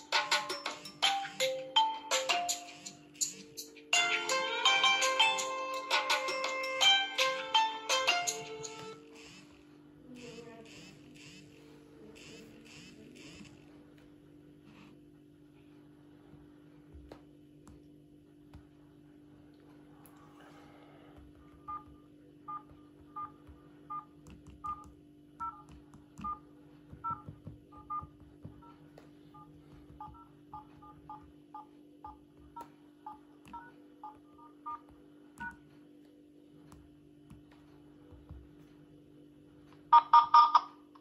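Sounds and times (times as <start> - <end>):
phone keypad tones: 21.4 - 28.8, 29.4 - 35.7, 39.9 - 40.7.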